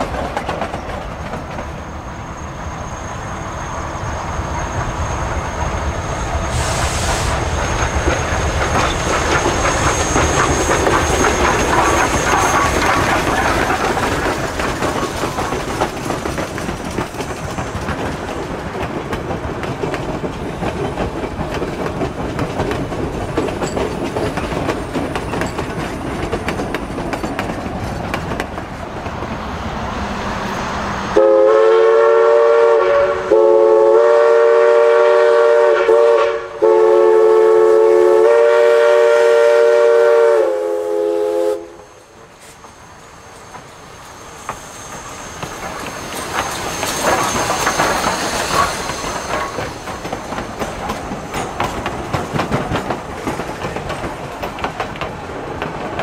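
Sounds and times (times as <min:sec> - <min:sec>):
steam train running by: 0:00.0 - 0:56.0
steam whistle blasts: 0:06.5 - 0:07.4, 0:31.2 - 0:42.0.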